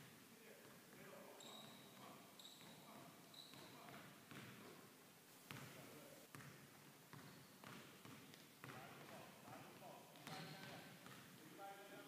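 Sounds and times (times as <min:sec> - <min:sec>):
basketball dribbling on hardwood: 0:03.5 - 0:04.7, 0:06.3 - 0:11.4.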